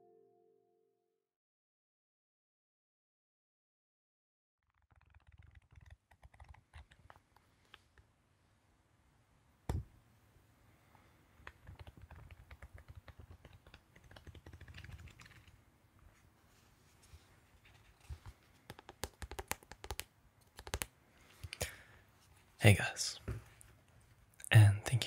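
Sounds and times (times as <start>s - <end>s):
small clicks and taps: 18.0s - 21.6s.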